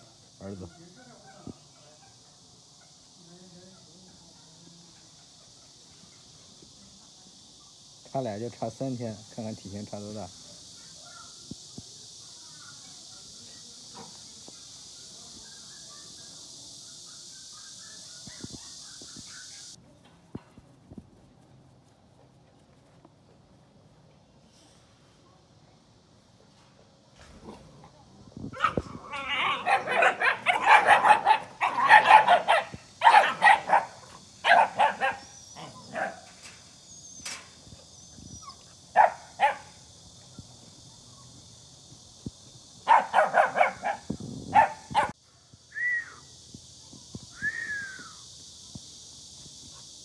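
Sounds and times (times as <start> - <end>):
puppies barking: 28.6 - 36.3, 38.4 - 39.7, 42.8 - 45.2.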